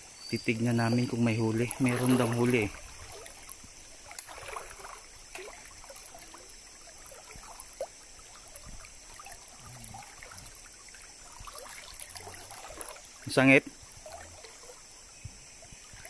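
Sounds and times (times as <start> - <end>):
stream running: 0.0 - 16.0
water splashing around waders: 0.0 - 16.0.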